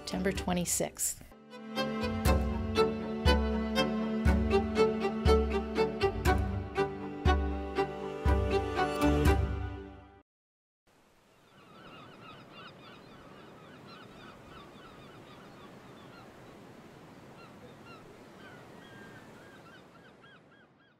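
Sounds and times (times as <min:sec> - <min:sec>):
flock of birds calling: 0:11.5 - 0:16.4, 0:17.3 - 0:20.9.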